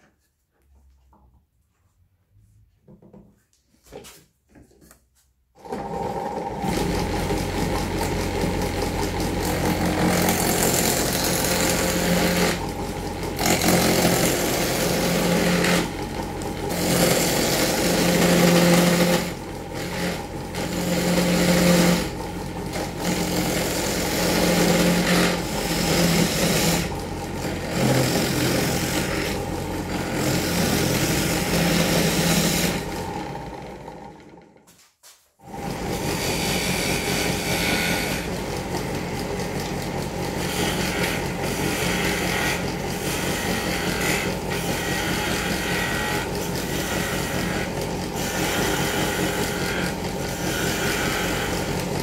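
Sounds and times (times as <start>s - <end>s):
lathe motor running: 5.6s - 34.6s, 35.4s - 52.0s
chisel cutting spinning wood: 5.6s - 34.7s, 35.4s - 52.0s.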